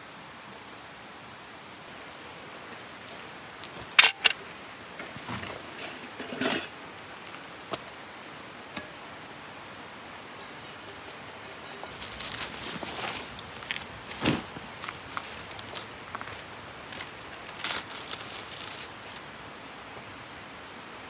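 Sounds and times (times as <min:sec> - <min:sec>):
scraping and rustling cookware: 0:02.6 - 0:04.4, 0:05.0 - 0:07.1, 0:10.4 - 0:14.6.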